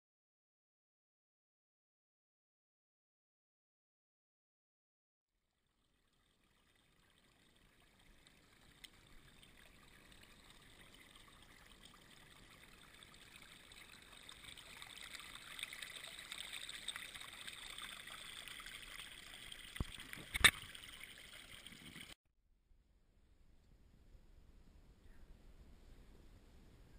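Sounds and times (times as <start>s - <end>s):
creek trickling over rocks: 5.5s - 22.2s.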